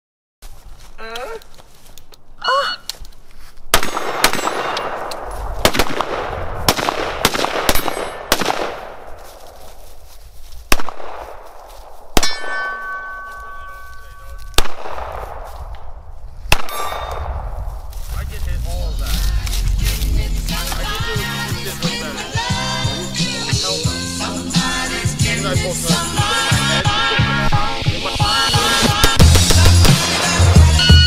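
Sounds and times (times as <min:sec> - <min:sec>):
gunshots: 0:03.7 - 0:09.2, 0:10.7 - 0:11.5, 0:12.1 - 0:12.6, 0:14.5 - 0:15.6, 0:16.5 - 0:17.6, 0:28.8 - 0:30.2
steel targets clanging: 0:12.2 - 0:14.2.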